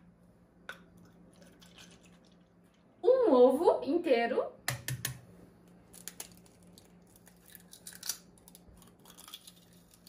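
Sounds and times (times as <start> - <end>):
egg cracking over glass dish: 5.9 - 10.0.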